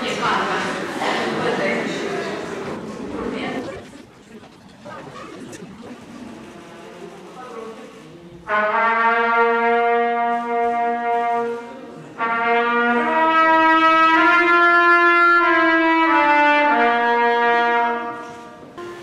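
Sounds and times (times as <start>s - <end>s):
brass instrument sustained notes: 7.9s - 19.0s.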